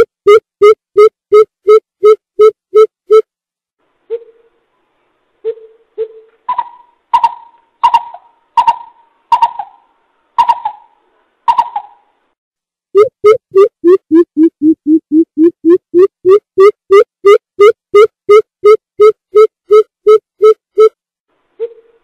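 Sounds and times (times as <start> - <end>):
coucal hooting calls: 6.0 - 12.1.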